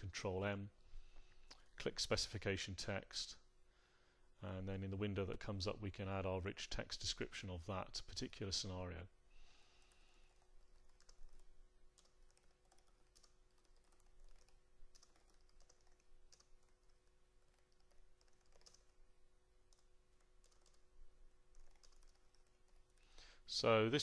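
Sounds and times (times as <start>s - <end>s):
faint steady hum: 0.0s - 24.0s
typing on keyboard: 9.8s - 19.0s, 19.7s - 20.9s, 21.5s - 23.0s.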